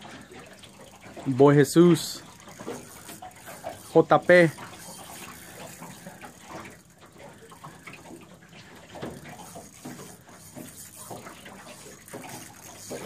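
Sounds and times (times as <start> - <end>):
water lapping against a hull: 0.0 - 13.0.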